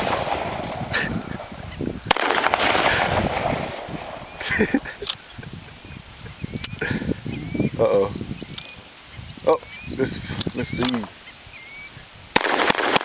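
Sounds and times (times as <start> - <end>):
pistol firing rapid shots: 0.0 - 4.3, 12.4 - 13.0
small birds chirping: 0.0 - 12.4.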